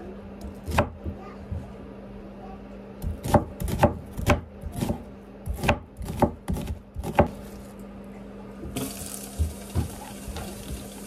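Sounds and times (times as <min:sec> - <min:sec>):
knife chopping on cutting board: 0:00.4 - 0:01.6, 0:03.0 - 0:07.4.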